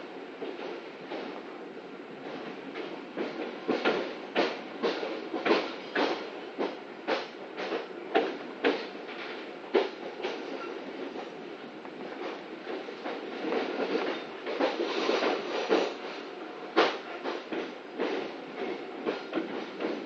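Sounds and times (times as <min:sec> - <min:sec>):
train rumble: 0:00.0 - 0:20.0.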